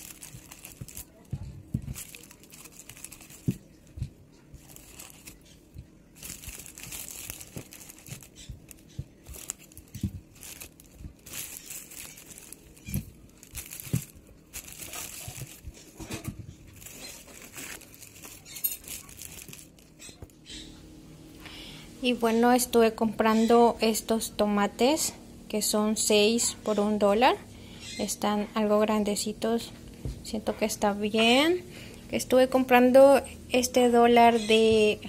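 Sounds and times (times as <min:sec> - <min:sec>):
plastic bags crinkling and rustling: 0:00.0 - 0:20.5.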